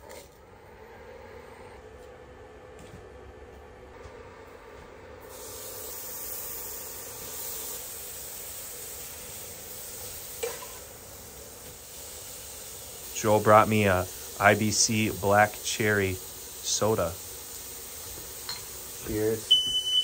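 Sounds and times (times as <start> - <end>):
meat sizzling in a frying pan: 5.3 - 20.0.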